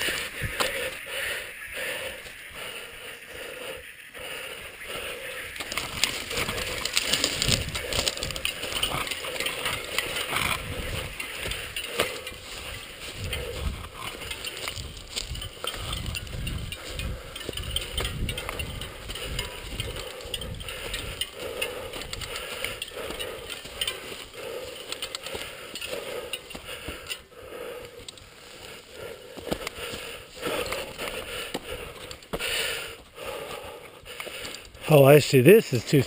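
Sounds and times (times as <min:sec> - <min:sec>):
footsteps on grass and dirt: 0:00.0 - 0:02.5, 0:04.7 - 0:33.6
wind rumbling on microphone: 0:05.5 - 0:24.6.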